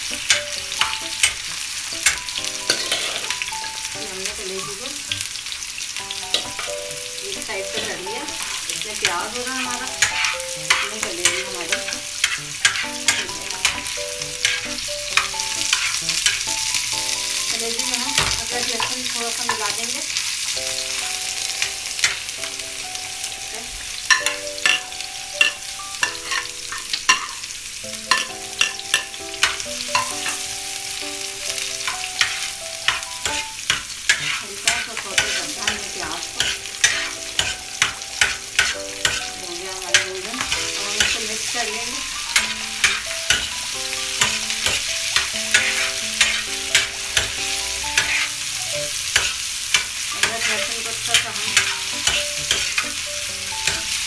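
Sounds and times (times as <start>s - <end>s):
metal spatula scraping griddle: 0.0s - 3.5s, 7.7s - 16.5s, 24.1s - 27.4s, 28.1s - 30.4s, 31.8s - 53.0s
liver and onion sizzling: 0.0s - 54.0s.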